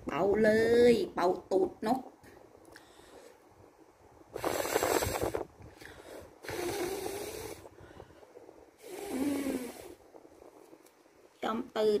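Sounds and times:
person blowing puffs of breath: 0:04.3 - 0:10.0.

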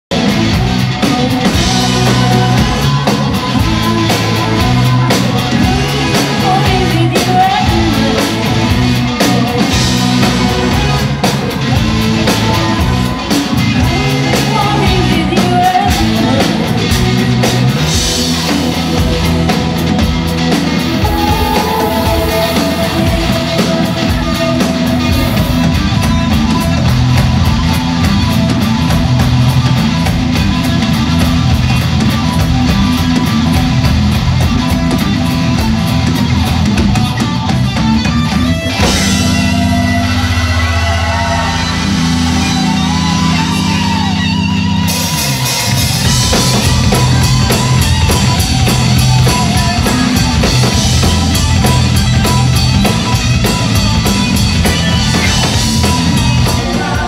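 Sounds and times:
live rock band playing: 0:00.1 - 0:57.0
voices singing: 0:01.1 - 0:25.9, 0:54.7 - 0:57.0.

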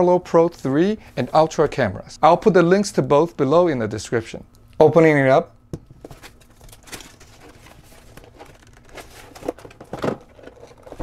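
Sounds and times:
packaging rustling and crinkling: 0:06.0 - 0:11.0.

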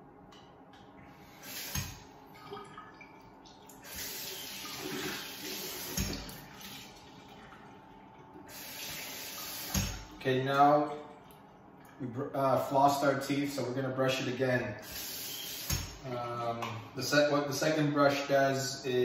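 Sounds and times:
tap running into sink: 0:04.8 - 0:06.8, 0:09.6 - 0:10.0.

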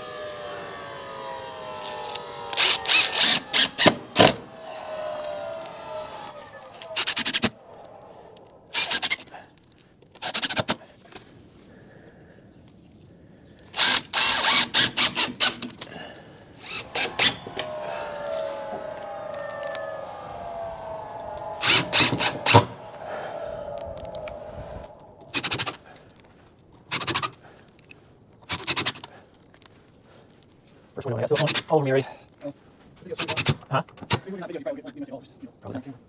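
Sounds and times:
cordless drill driving screws: 0:01.8 - 0:04.4, 0:13.8 - 0:15.7.

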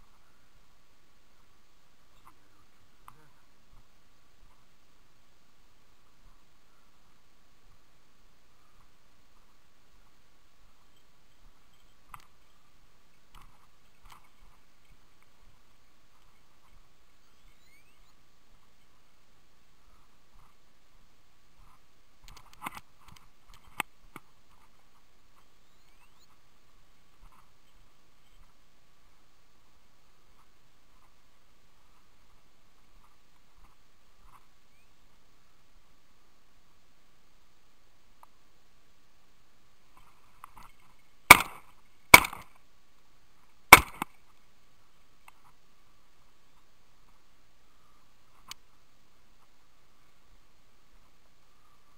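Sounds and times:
shotgun shots with echo: 0:41.3 - 0:42.4
stone clicking on stone: 0:42.2 - 0:42.5.

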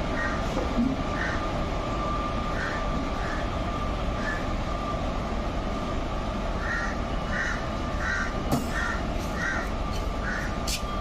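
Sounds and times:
electric locomotives humming: 0:00.0 - 0:11.0
crow cawing: 0:01.2 - 0:01.4, 0:02.5 - 0:03.4, 0:06.6 - 0:10.6.

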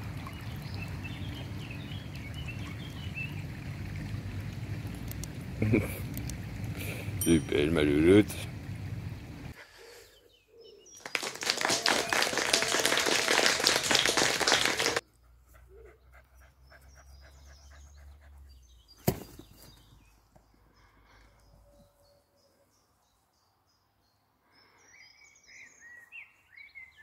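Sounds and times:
faint birdsong: 0:00.1 - 0:11.4, 0:13.7 - 0:27.0
dog panting: 0:15.2 - 0:18.8.

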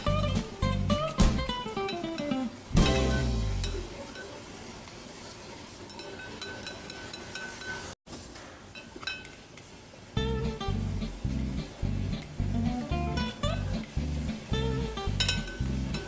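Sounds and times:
frying hiss: 0:00.0 - 0:16.0
metal spatula clinking on pot: 0:01.7 - 0:02.4, 0:05.9 - 0:07.9, 0:08.8 - 0:09.4, 0:15.1 - 0:16.0.

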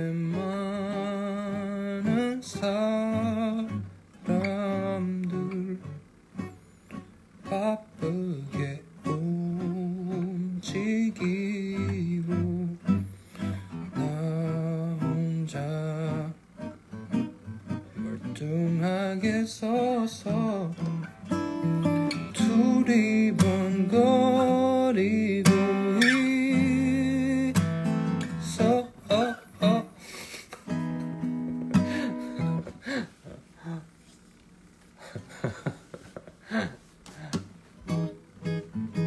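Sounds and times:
fingerstyle acoustic guitar: 0:00.0 - 0:34.3, 0:35.1 - 0:39.0
person humming: 0:31.8 - 0:34.0.

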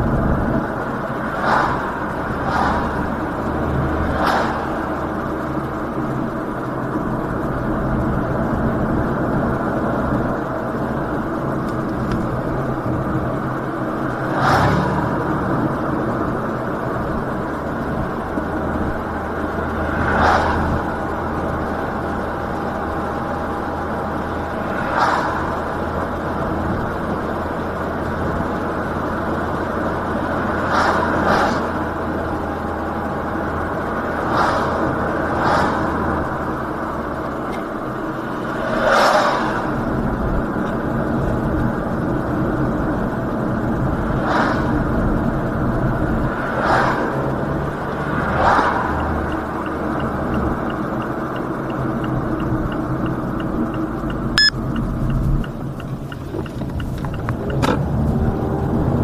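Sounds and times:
truck passing whoosh: 0:00.0 - 0:07.0, 0:13.6 - 0:16.6, 0:18.2 - 0:22.6, 0:23.2 - 0:27.2, 0:30.1 - 0:32.3, 0:33.0 - 0:40.6, 0:43.7 - 0:50.4
car tyres and drivetrain drone: 0:00.0 - 0:59.0.

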